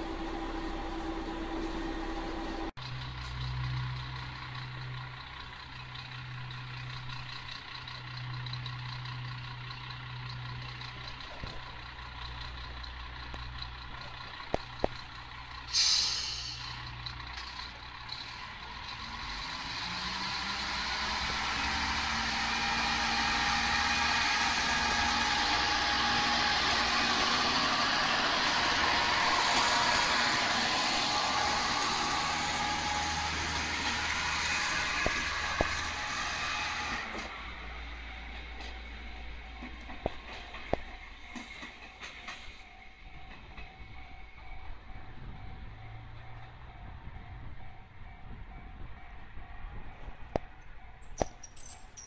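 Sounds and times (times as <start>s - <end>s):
diesel railcar engine: 0.0s - 52.0s
air hiss: 15.7s - 16.8s.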